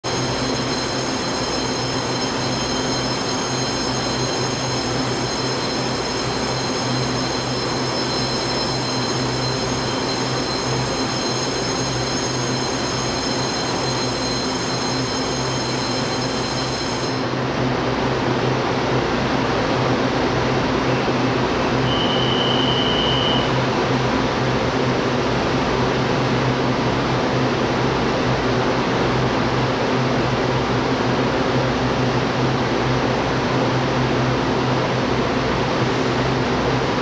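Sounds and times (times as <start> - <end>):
train air conditioning hum: 15.7 - 37.0
high whine: 20.6 - 24.4.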